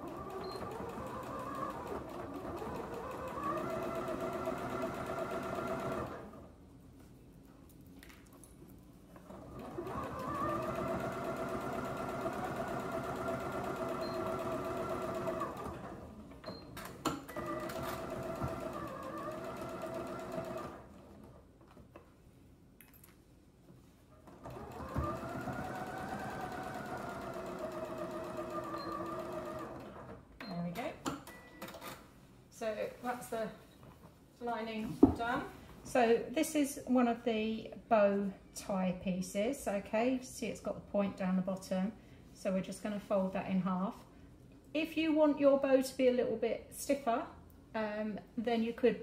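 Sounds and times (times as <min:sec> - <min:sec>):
sewing machine motor whine: 0:00.0 - 0:06.4, 0:09.6 - 0:16.0, 0:17.3 - 0:20.9, 0:24.4 - 0:30.0.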